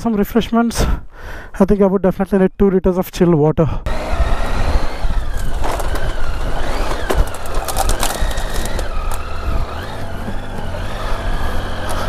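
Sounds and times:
motorcycle engine revving: 3.9s - 12.0s
clicks and knocks from rough ground: 5.3s - 9.3s.

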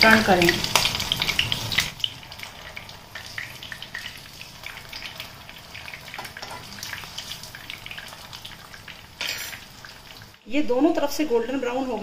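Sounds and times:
oil sizzling with crackling pops: 0.0s - 10.5s.

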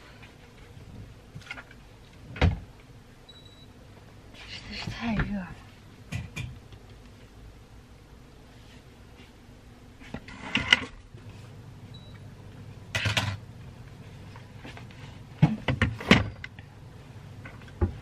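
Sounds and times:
handling rustles and knocks: 14.1s - 16.6s.

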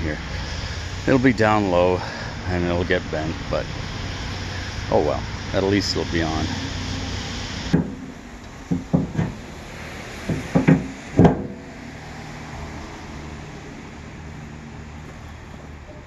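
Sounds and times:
steady low hum: 0.0s - 16.0s
knocks and clunks: 7.7s - 9.5s, 10.2s - 11.7s.

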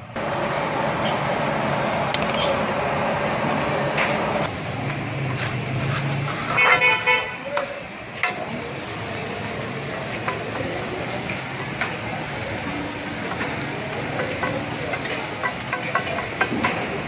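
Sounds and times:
food sizzling on griddle: 0.0s - 17.0s
metal scraper scraping griddle: 5.2s - 7.1s.

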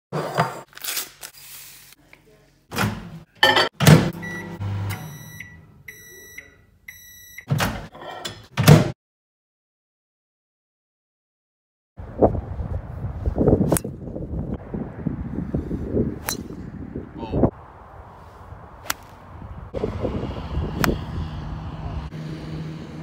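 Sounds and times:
kitchen clunks and knocks: 2.7s - 4.1s
microwave oven beeps: 4.1s - 7.5s.

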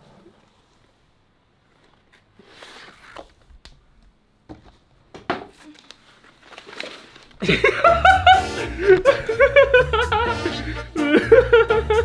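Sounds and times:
cardboard and paper rustling: 1.6s - 3.6s, 5.4s - 7.6s
loud background music: 7.9s - 12.0s.

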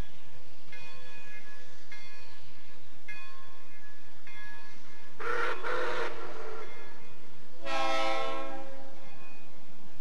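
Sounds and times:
steam whistle blasts: 5.2s - 6.3s, 7.6s - 8.8s.

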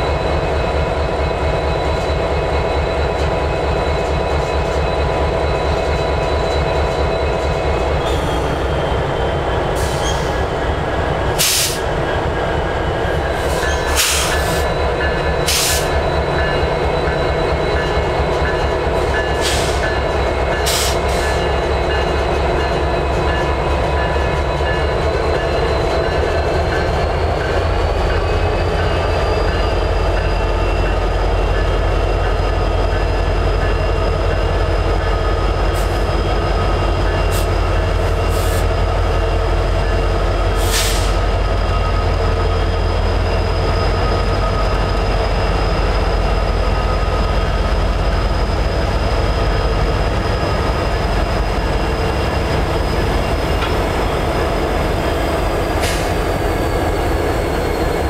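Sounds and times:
diesel locomotive rumbling: 0.0s - 58.0s.

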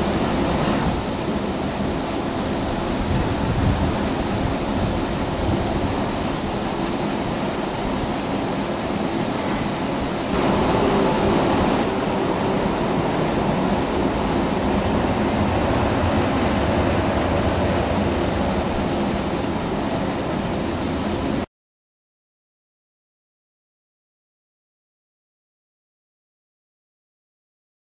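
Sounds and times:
train rolling on tracks: 0.0s - 21.4s
wind on microphone: 0.0s - 21.4s.

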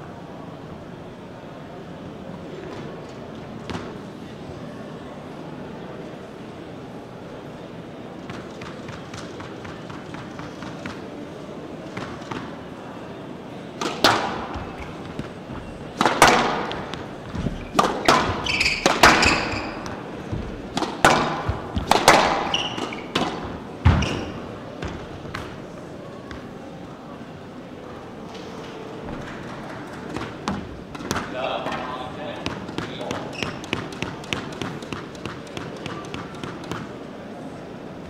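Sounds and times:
racket and ball cracks: 13.8s - 24.4s, 32.4s - 37.0s
shoes squeaking on court: 13.8s - 25.7s, 32.4s - 36.9s.

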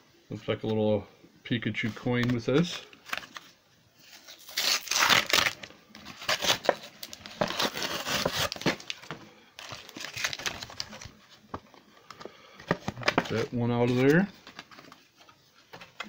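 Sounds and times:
plastic packaging crinkling: 1.9s - 11.3s.

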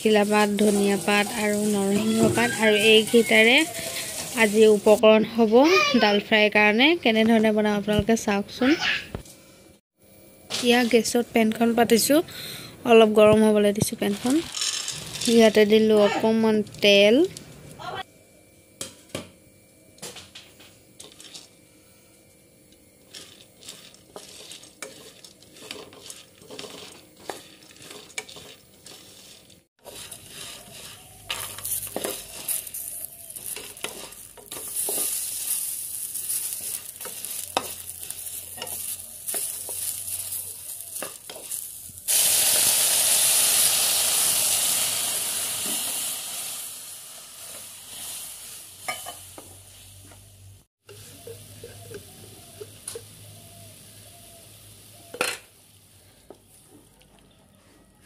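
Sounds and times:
wooden spatula stirring lentils: 0.0s - 4.9s, 23.0s - 42.0s
loud hiss of water in hot pan: 0.0s - 5.0s, 29.8s - 50.1s
lentils sizzling in oil: 0.0s - 5.2s, 12.9s - 18.0s, 21.0s - 21.6s, 22.6s - 56.7s.

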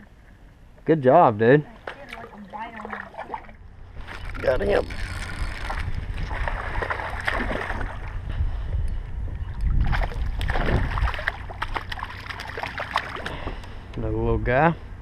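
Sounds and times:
fish thrashing and splashing: 1.7s - 8.2s, 9.8s - 13.6s
wind rumble on microphone: 3.6s - 12.0s.

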